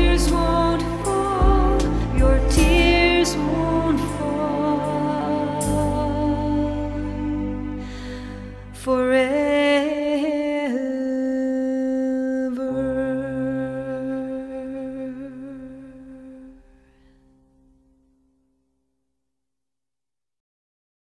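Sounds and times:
person singing long notes: 0.0 - 16.7.

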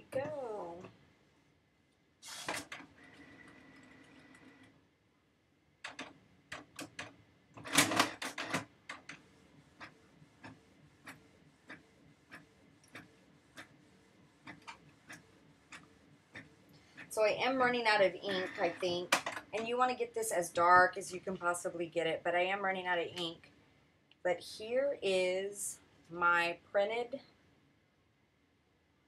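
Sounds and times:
inkjet printer running: 9.4 - 19.1.

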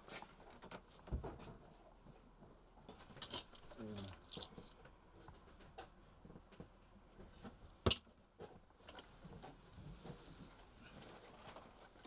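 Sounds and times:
metal tools clinking: 3.2 - 4.8.

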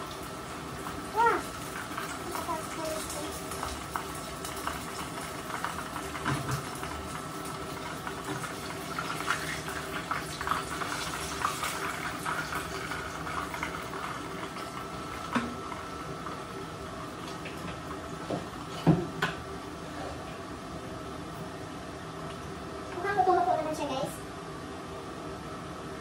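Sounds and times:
oil sizzling and crackling: 0.0 - 19.9.

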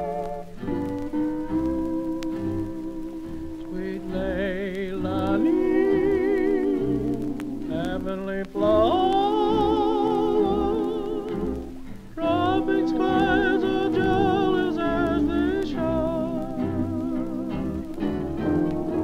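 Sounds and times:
bass line: 0.0 - 19.0
slow melody with vibrato: 0.0 - 19.0.

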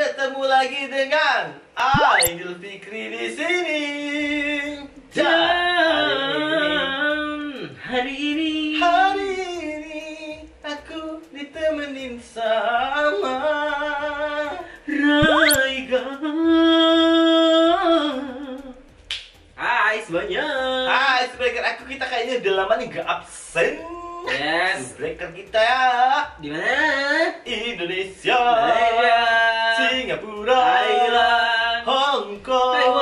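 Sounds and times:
rising whistle-like sweep: 2.0 - 2.3, 15.2 - 15.6
men singing unaccompanied: 2.2 - 18.8, 19.6 - 21.3, 23.9 - 33.0.

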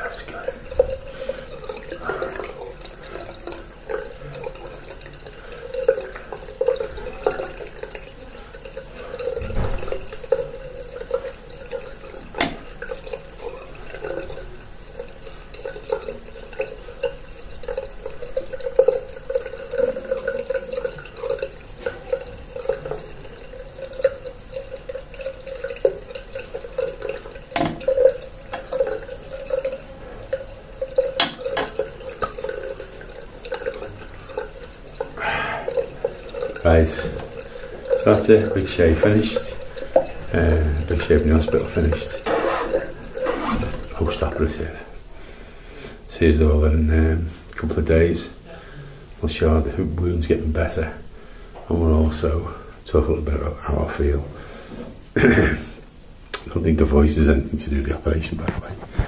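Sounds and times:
tap running into sink: 9.2 - 13.2, 26.8 - 29.1, 31.0 - 32.6.

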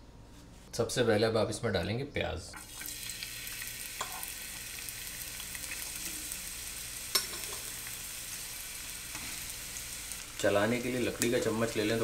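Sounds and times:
onion sizzling in oil: 2.6 - 12.0.

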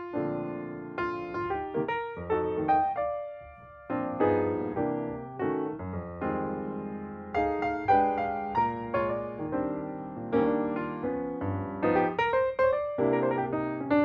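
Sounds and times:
gentle piano music: 0.0 - 14.0.

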